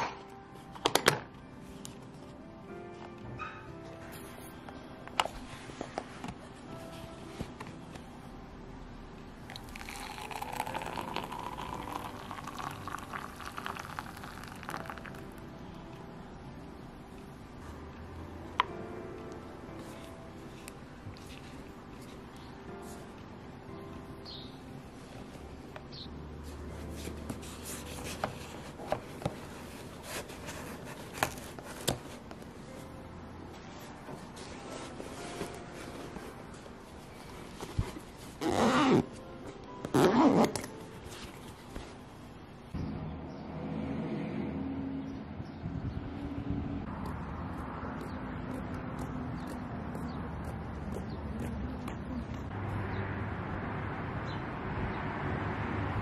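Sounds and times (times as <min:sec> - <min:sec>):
liquid pouring into ceramic cup: 0:09.5 - 0:15.2.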